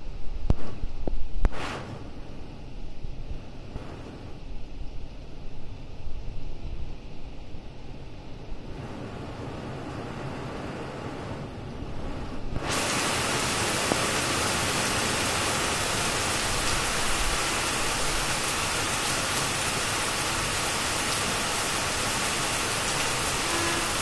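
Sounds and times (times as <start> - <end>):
heavy rain on roof and trees: 8.6 - 24.0.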